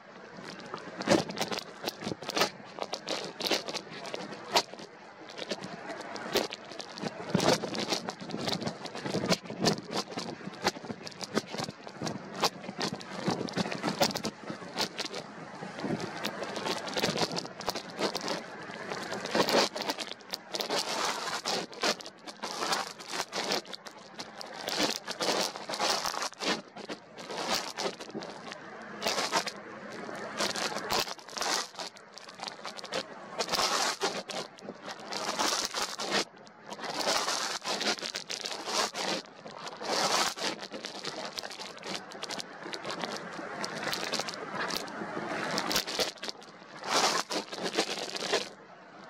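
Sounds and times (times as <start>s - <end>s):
strong wind buffeting microphone: 6.9s - 19.8s.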